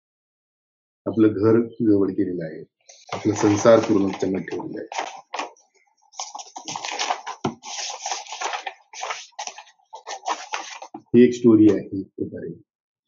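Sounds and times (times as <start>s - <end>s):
paper rustling: 2.9s - 11.0s.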